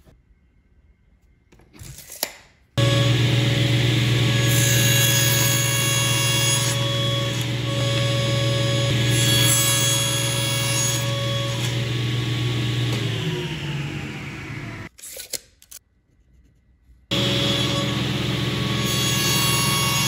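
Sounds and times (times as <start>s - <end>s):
table saw running: 2.8s - 14.9s, 17.1s - 20.0s.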